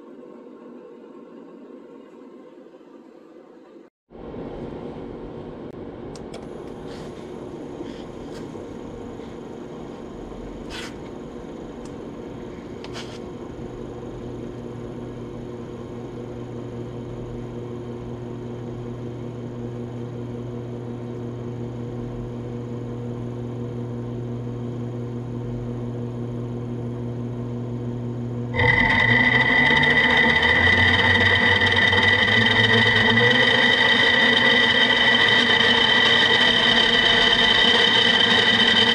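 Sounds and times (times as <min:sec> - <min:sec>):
high gear whine: 0:06.3 - 0:38.9
electric motor humming: 0:08.1 - 0:38.9.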